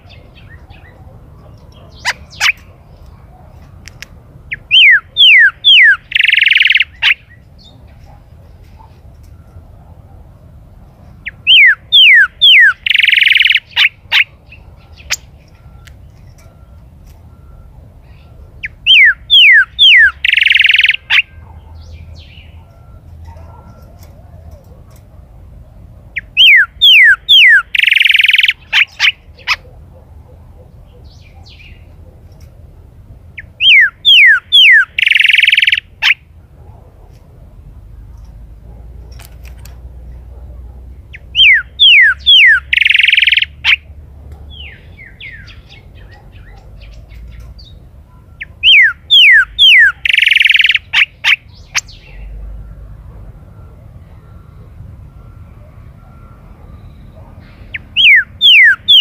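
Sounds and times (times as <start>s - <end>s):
bird whistling song: 1.6s - 2.7s, 4.5s - 7.9s, 11.2s - 24.1s, 26.2s - 29.7s, 33.4s - 36.2s, 41.1s - 43.8s, 44.5s - 52.4s, 56.0s - 59.0s.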